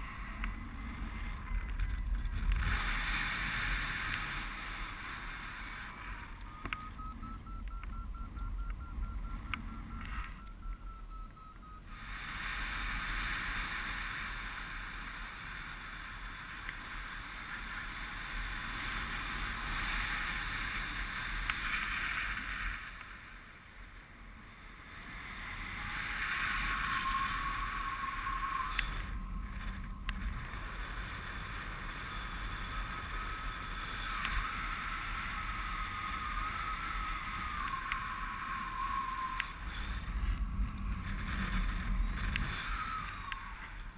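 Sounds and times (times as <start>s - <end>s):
thin wavering whistle: 6.1s - 12.1s, 25.5s - 30.1s, 32.6s - 40.1s, 42.4s - 43.8s
wind rushing over microphone: 24.9s - 43.9s.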